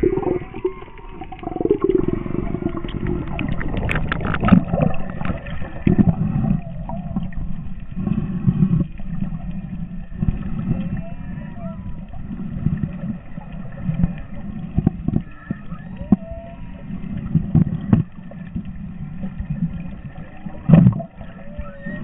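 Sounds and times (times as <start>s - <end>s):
wavering higher whale calls: 0.0s - 2.9s, 6.4s - 7.4s, 10.7s - 12.2s, 15.2s - 17.4s, 20.3s - 22.0s
whale moans and grunts: 10.7s - 12.1s, 15.1s - 17.4s, 21.0s - 22.0s.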